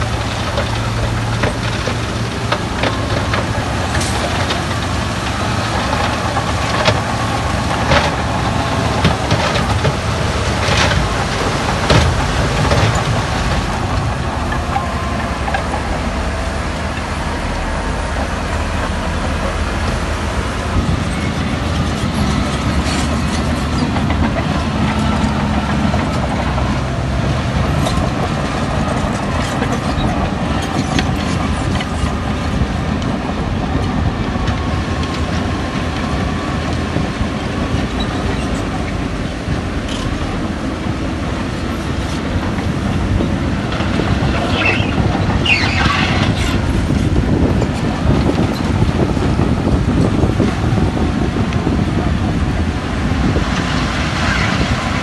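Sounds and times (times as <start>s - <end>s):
diesel machinery running: 0.0s - 55.0s
high squeal: 44.4s - 46.6s.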